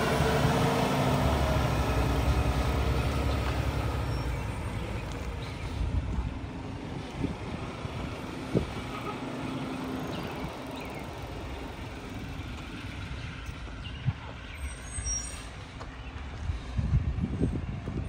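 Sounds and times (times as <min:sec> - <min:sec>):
distant truck diesel engine rumbling: 0:00.0 - 0:16.3.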